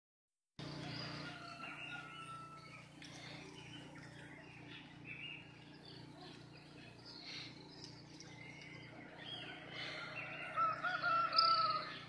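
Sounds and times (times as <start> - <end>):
birds chirping and calling: 0.6 - 12.0
steady low hum: 0.6 - 12.0
bird long level whistle: 10.3 - 12.0.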